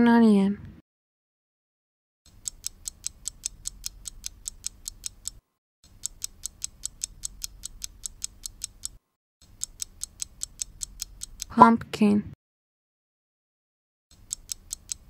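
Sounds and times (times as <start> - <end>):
fast clock ticking: 2.3 - 11.5, 14.1 - 15.0.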